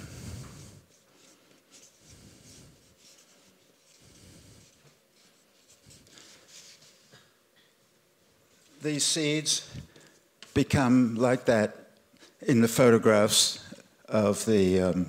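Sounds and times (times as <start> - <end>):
marker rubbing on paper: 0.9 - 7.0.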